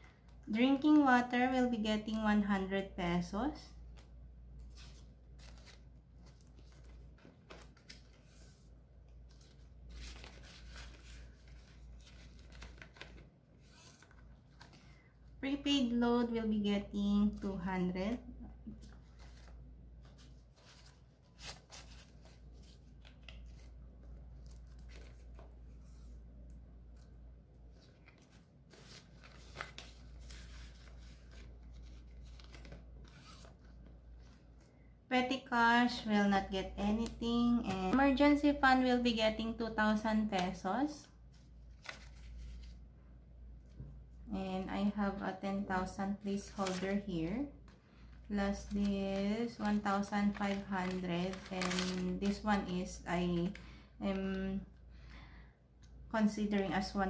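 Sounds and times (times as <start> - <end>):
plastic pages crinkling: 3.9 - 15.1, 18.6 - 26.2, 26.9 - 34.4, 41.3 - 42.8, 46.3 - 54.4
paper banknotes rustling: 4.6 - 15.0, 18.7 - 26.2, 27.7 - 34.3, 41.3 - 42.8, 48.3 - 54.3
banknotes and plastic rustling: 27.7 - 34.0, 46.2 - 54.5.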